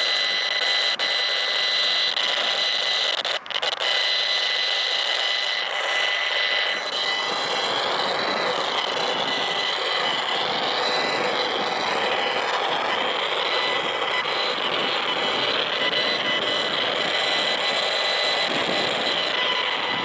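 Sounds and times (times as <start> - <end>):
electronic buzz with high tones: 0.0 - 20.0
wavering electronic tone: 0.0 - 20.0.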